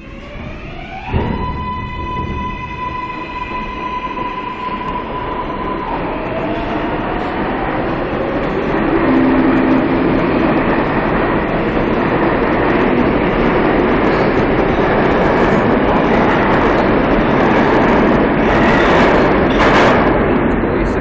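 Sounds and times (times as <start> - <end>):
subway train rumbling on rails: 0.0 - 21.0
steady pitched tone: 8.5 - 11.9.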